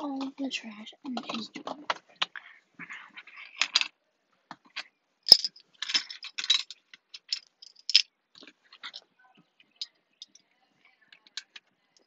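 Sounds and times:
small hard items clinking and rattling: 2.8s - 4.0s, 4.7s - 9.1s, 9.7s - 10.4s.

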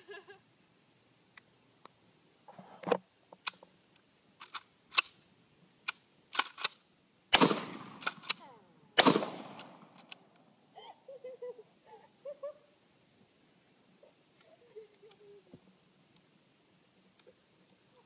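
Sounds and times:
shotgun blasts: 7.3s - 8.4s, 9.0s - 9.9s.

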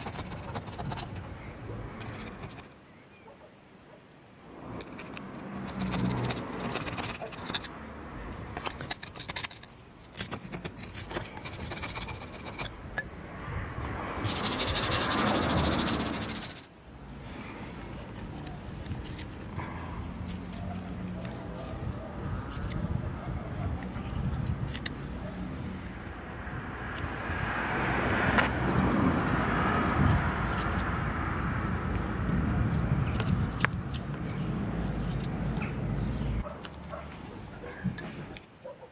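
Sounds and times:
cricket chirping: 0.0s - 38.9s
loud hissing rush: 14.1s - 16.7s.

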